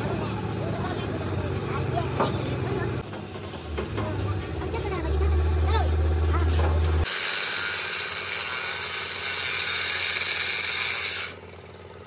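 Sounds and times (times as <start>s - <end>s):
power tool hissing on metal: 7.0s - 11.6s.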